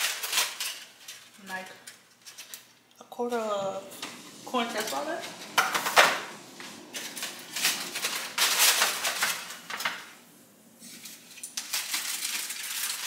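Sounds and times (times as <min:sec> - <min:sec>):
aluminium foil crinkling: 0:00.0 - 0:03.0, 0:06.8 - 0:10.1, 0:10.8 - 0:13.0.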